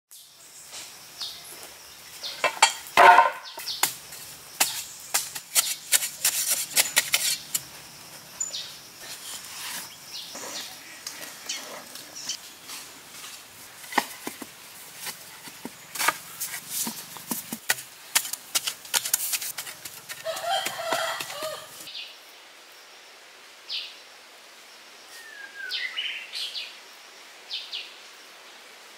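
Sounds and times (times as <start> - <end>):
objects clattering: 2.2 - 3.8.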